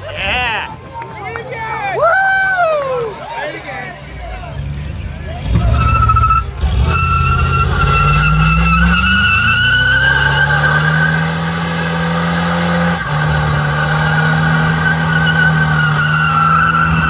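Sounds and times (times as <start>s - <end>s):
car engine revving high: 5.3s - 17.0s
tyres squealing: 5.4s - 17.0s.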